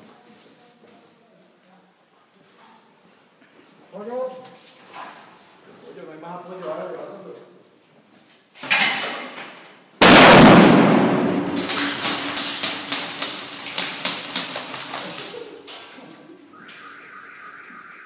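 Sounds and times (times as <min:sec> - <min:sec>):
stun grenade bang: 0:10.0 - 0:13.2
rapid crackling pops: 0:10.0 - 0:15.5.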